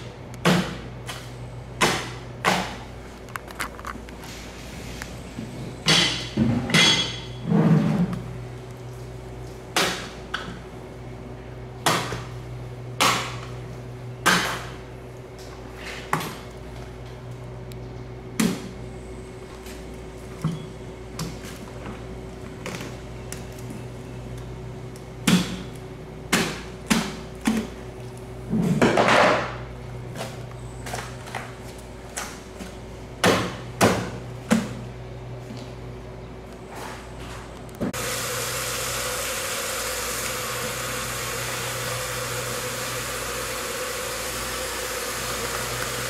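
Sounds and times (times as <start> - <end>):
low machine hum: 0.0 - 46.0.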